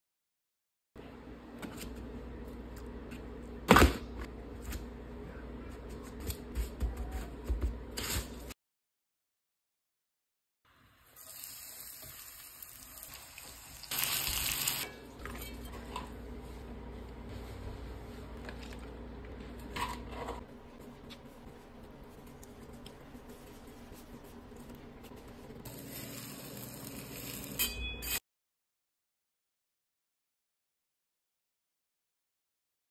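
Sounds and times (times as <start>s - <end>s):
food sizzling on hot pan: 11.0s - 14.9s, 25.7s - 27.6s
low steady hum: 14.9s - 28.0s
tortilla rustling: 20.6s - 27.6s.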